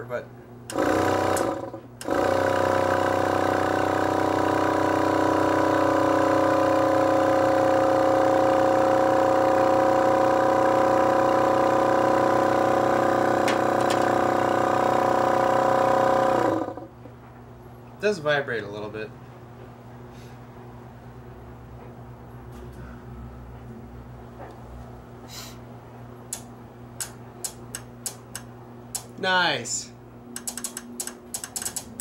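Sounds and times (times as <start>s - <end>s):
vacuum pump hum and whine: 0.0s - 32.0s.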